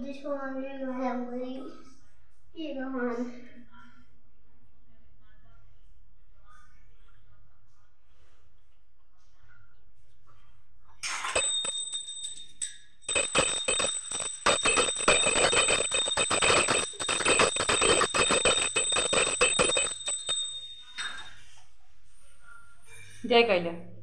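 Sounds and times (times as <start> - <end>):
small hand bell ringing rapidly: 11.3 - 21.4.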